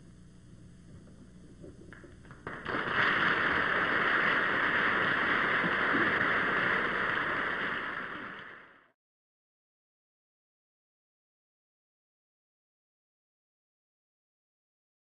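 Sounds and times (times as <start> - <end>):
studio audience applauding: 2.3 - 8.9.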